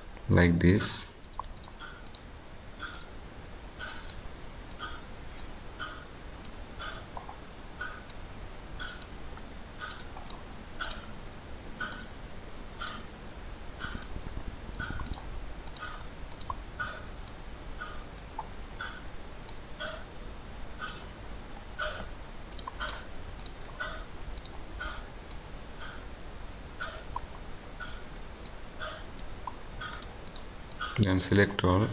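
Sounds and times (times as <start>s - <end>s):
faint low hum: 0.0s - 31.9s
computer mouse clicking: 1.2s - 3.2s, 3.8s - 8.2s, 8.8s - 11.1s, 11.8s - 12.2s, 12.8s - 13.1s, 13.8s - 20.0s, 20.8s - 21.1s, 21.8s - 26.0s, 26.8s - 31.6s.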